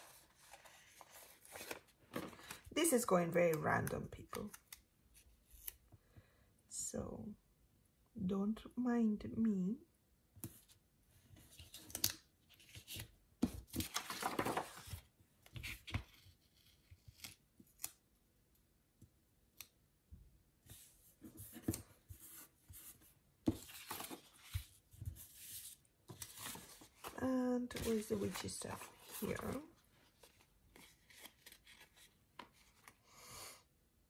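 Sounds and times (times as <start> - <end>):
paper rustling: 0.0 - 2.7, 11.4 - 17.4, 20.7 - 33.0.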